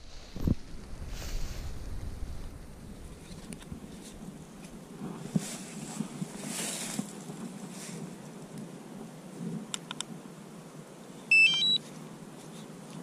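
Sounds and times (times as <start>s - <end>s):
wind gusting over microphone: 0.0s - 8.2s.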